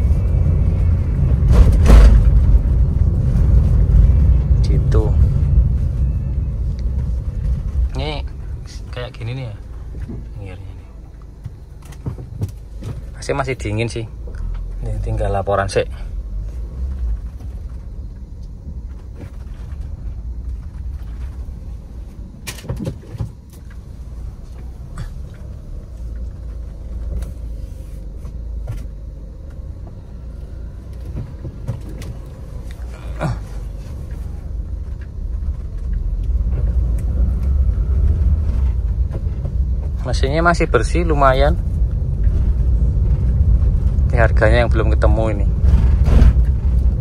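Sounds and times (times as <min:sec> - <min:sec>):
engine and road rumble: 0:00.0 - 0:47.0.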